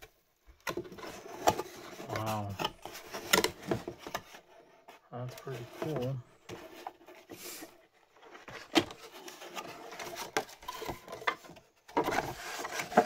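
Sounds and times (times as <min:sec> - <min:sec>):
card sliding out of cardboard box: 0:05.7 - 0:07.8.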